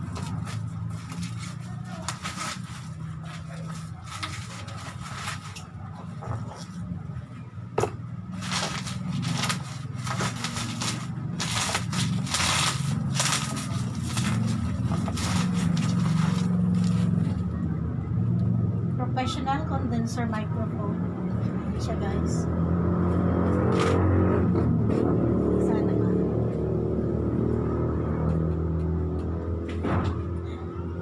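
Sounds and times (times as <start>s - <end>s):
packaging crinkling: 0.0s - 5.6s, 8.3s - 17.4s.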